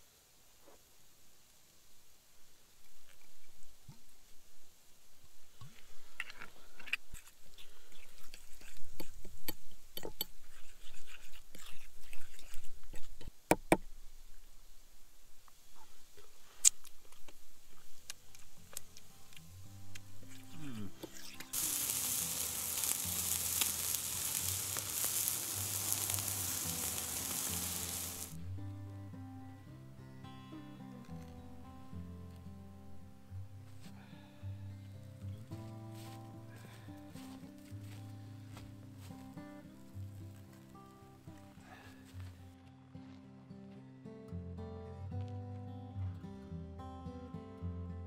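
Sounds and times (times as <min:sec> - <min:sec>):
sharp pops and crackles: 0:05.6 - 0:14.5, 0:15.4 - 0:28.4
fork stirring wet herbs: 0:07.9 - 0:13.1, 0:21.1 - 0:28.4
skewers sizzling over embers: 0:16.4 - 0:28.4.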